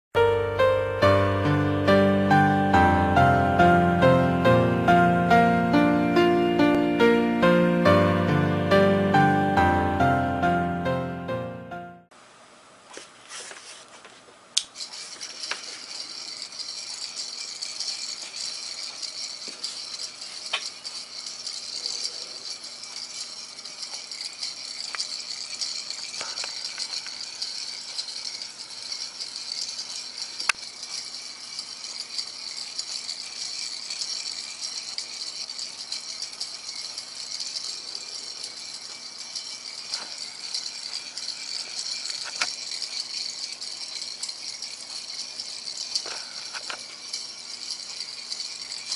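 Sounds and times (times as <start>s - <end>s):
gear train rattling: 14.8s - 48.9s.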